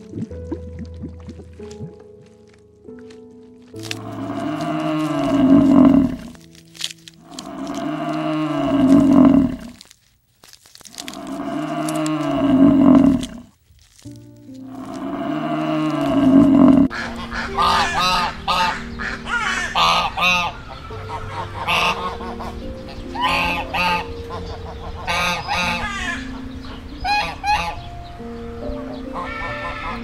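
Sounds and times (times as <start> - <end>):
buffalo calling: 3.8 - 9.9, 10.9 - 13.4, 14.7 - 27.9
music with long held notes: 14.1 - 30.0
ducks quacking: 14.8 - 27.9, 28.8 - 30.0.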